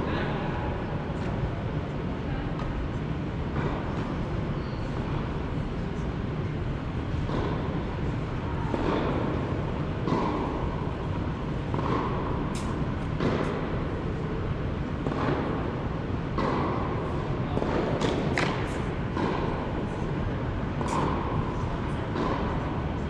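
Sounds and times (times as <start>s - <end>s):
steady background noise: 0.0s - 23.0s
tennis ball struck by rackets: 8.7s - 11.0s, 11.6s - 13.8s, 14.9s - 15.7s, 16.3s - 22.7s.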